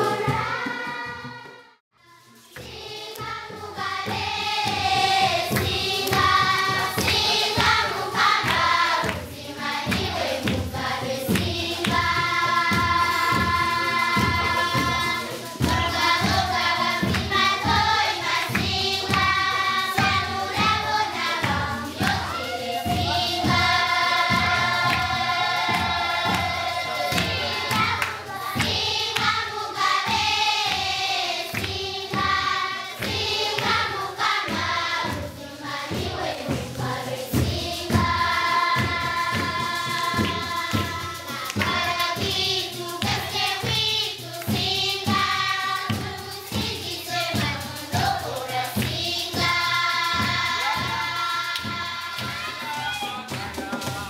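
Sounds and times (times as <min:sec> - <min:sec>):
choir singing: 0:00.0 - 0:54.0
steady percussive beat: 0:00.0 - 0:54.0.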